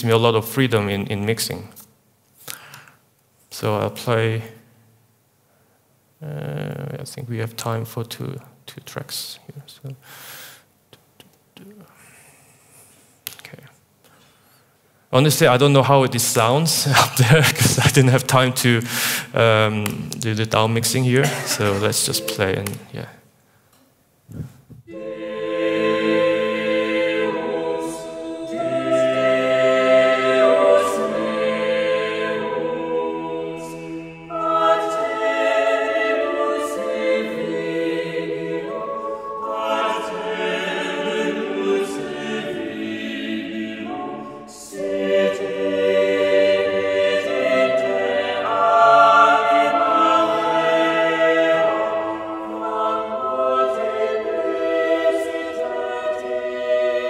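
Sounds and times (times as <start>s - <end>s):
choir singing sustained chords: 20.8s - 23.2s, 24.9s - 57.0s.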